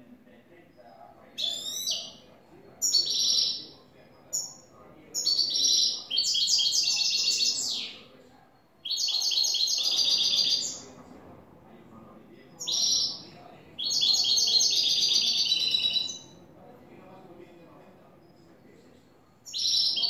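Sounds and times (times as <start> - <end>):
finch singing high twittering notes: 1.4 - 2.2, 2.8 - 3.7, 4.3 - 8.0, 8.8 - 10.9, 12.6 - 16.4, 19.5 - 20.0.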